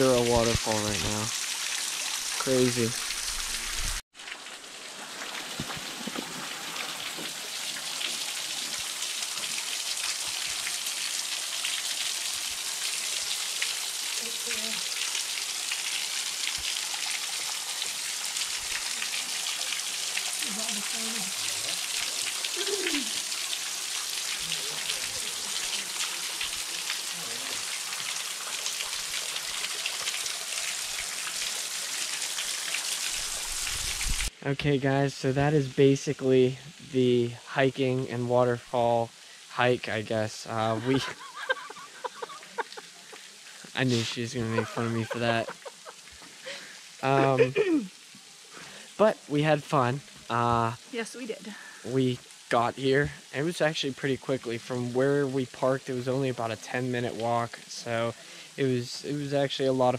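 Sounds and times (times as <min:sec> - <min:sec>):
waterfall splashing onto rock: 0:00.0 - 0:34.3, 0:40.6 - 0:49.1.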